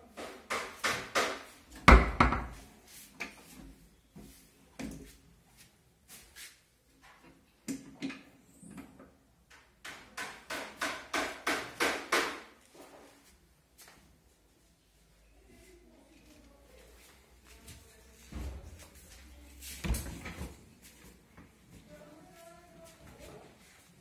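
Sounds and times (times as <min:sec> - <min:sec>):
cabinet shelf knocking and rattling: 0:00.5 - 0:02.6.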